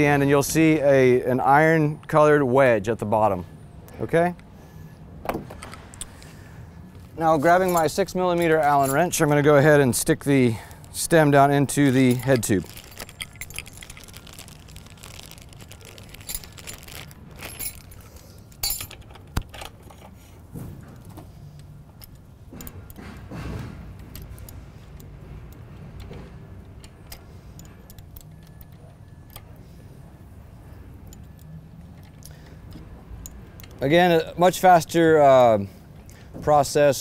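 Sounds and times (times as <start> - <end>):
allen wrench clicking on metal: 24.0 - 29.6, 31.0 - 33.9.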